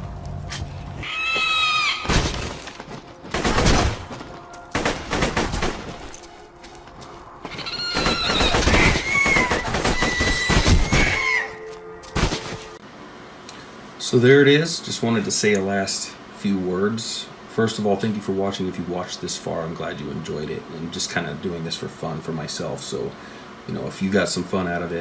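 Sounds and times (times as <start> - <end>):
high-pitched creature screeches: 1.0 - 2.1, 7.5 - 11.7
video game gunfire and impacts: 3.2 - 6.1.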